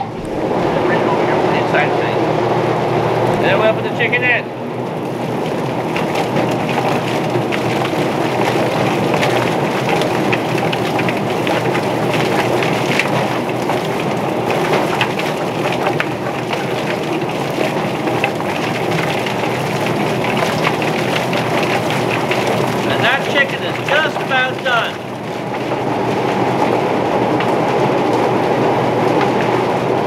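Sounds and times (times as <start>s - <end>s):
water spraying: 0.0s - 2.3s, 5.0s - 25.2s
chicken plucker running: 15.2s - 25.1s.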